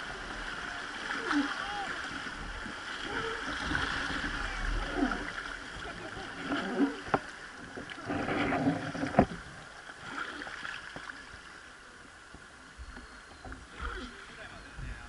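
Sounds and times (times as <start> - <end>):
oar splashing in water: 0.0 - 11.3.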